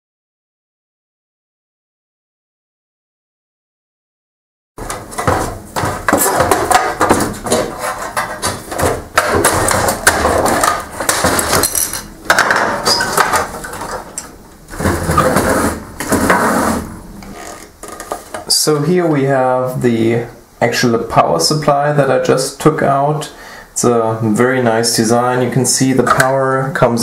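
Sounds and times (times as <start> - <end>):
metal and plastic parts clattering: 4.8 - 16.5.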